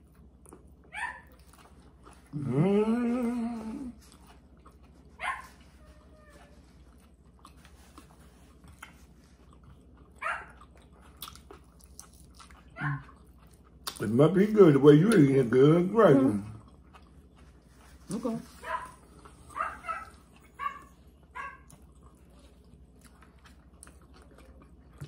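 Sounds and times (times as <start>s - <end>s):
dog whining: 18.5s - 21.6s.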